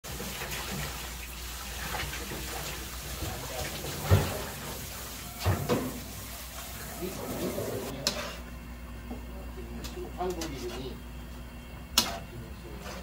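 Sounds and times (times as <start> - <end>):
water boiling and bubbling: 0.0 - 7.9.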